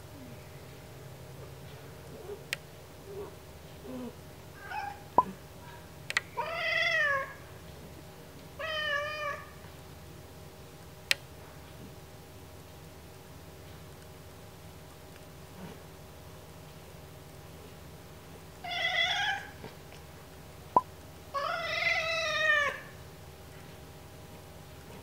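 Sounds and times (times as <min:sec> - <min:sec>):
cat meowing: 0:06.4 - 0:07.4, 0:08.6 - 0:09.5, 0:18.6 - 0:19.6, 0:21.4 - 0:22.9.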